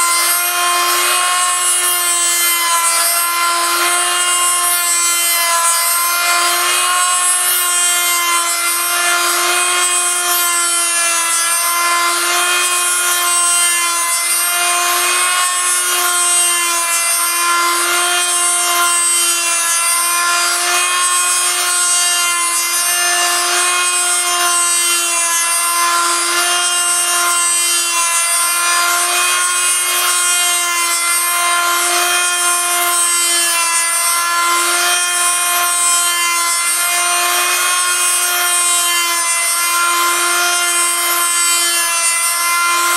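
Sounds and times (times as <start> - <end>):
rasping wood cutting: 0.0 - 42.9
rotary tool whining: 0.0 - 42.9.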